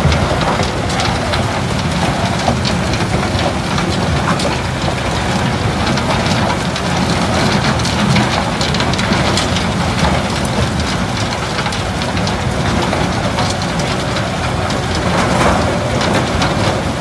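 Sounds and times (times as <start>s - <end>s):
concrete pieces clattering in crusher: 0.0s - 17.0s
excavator bucket working: 0.0s - 17.0s.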